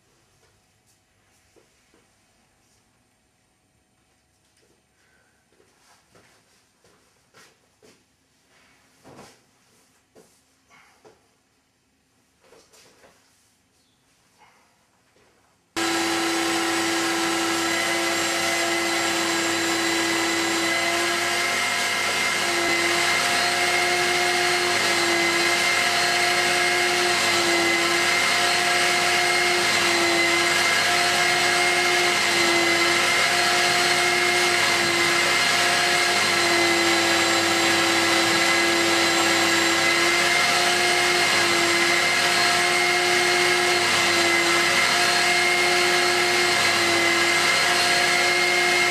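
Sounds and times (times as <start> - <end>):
vacuum cleaner motor running: 15.8 - 48.9.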